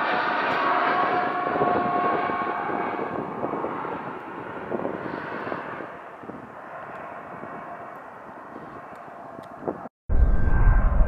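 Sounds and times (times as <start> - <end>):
jet engines rushing: 0.0 - 11.0
faint whine: 10.1 - 11.0.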